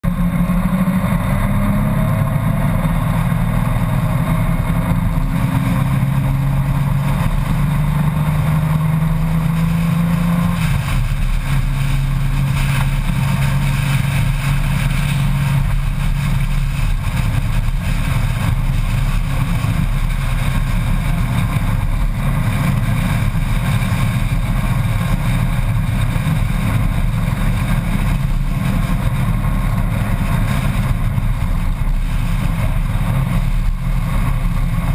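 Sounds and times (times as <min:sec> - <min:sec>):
motorcycle engine cruising: 0:00.0 - 0:34.9
wind and road noise: 0:00.0 - 0:34.9.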